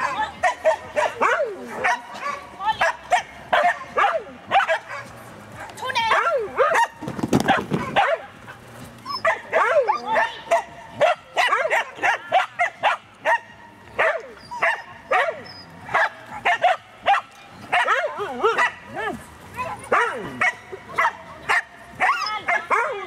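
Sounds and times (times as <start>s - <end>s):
dog yapping: 9.1s - 13.4s.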